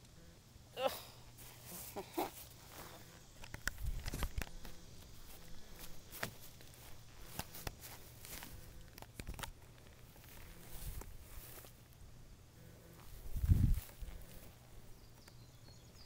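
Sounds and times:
footsteps on grass: 1.3s - 11.9s, 13.0s - 14.8s
camera handling noise: 3.4s - 5.1s, 7.2s - 11.7s.

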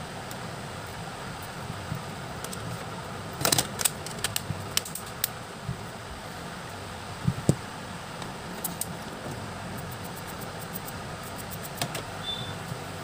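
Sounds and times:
steady fan-like hum: 0.0s - 13.0s.

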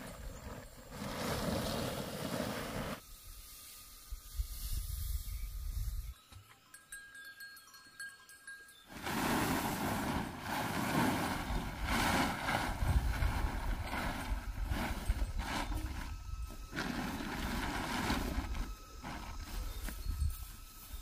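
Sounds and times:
plastic tarpaulin rustling: 0.0s - 3.0s, 8.9s - 21.0s.

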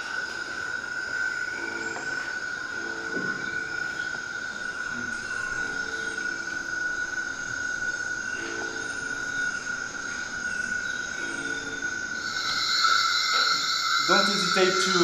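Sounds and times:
steady high electronic tone: 5.6s - 15.0s
short lower electronic tones: 11.2s - 15.0s.

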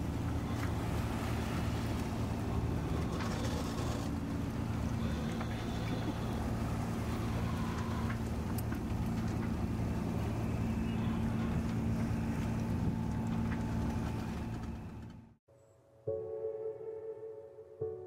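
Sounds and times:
boat engine humming: 0.0s - 15.4s
water and wind noise: 0.0s - 15.4s.

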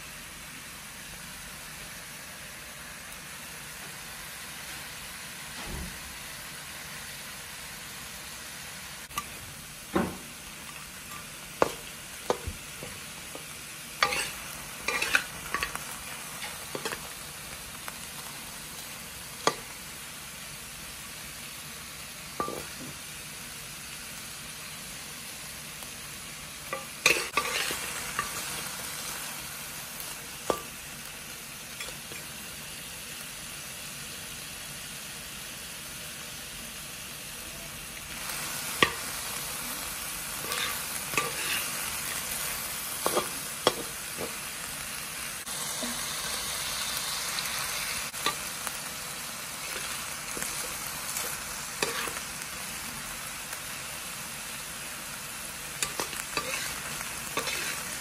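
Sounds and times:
meat sizzling in a wok: 0.0s - 58.0s
metal spatula scraping a pan: 10.7s - 17.2s, 26.7s - 28.6s, 40.4s - 42.2s, 43.0s - 44.4s, 49.6s - 52.3s, 55.8s - 58.0s.

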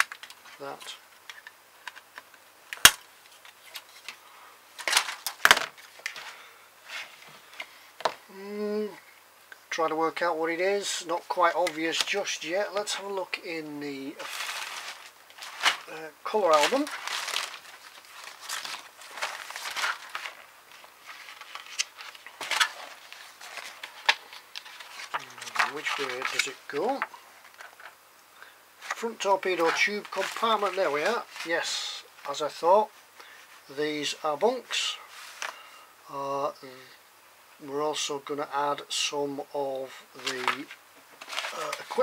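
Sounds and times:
paper rustling and crinkling: 3.3s - 4.2s, 4.8s - 8.2s, 14.0s - 28.0s, 28.8s - 33.6s, 34.5s - 35.7s, 40.2s - 42.0s.

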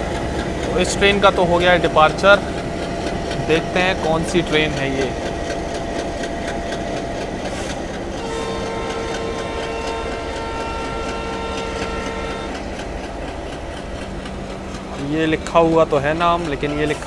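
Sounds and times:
low train rumble: 0.0s - 17.0s
train wheels clicking over rail joints: 0.0s - 17.0s
train horn blast: 8.2s - 12.7s.

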